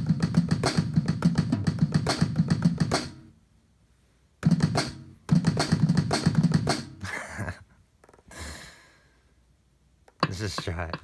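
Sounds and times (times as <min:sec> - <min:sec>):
hip-hop drum pattern: 0:00.0 - 0:03.3, 0:04.4 - 0:07.0, 0:10.1 - 0:11.0.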